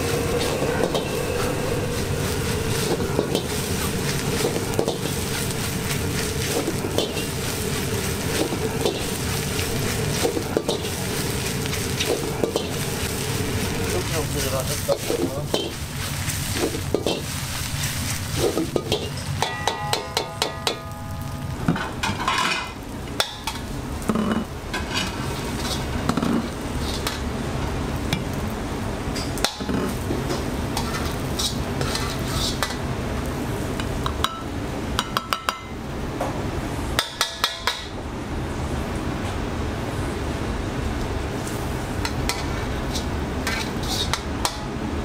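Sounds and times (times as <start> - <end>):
steady low rumble: 0.0 - 19.4
metal ladle scraping a wok: 0.1 - 20.6, 30.8 - 32.8, 42.3 - 44.3.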